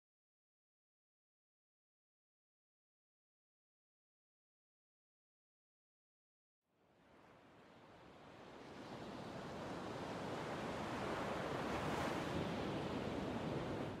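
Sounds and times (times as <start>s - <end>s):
sea waves washing: 7.1s - 14.0s.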